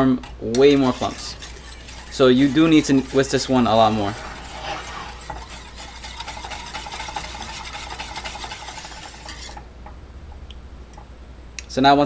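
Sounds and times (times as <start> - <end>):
whisk scraping a metal pan: 0.0 - 9.7.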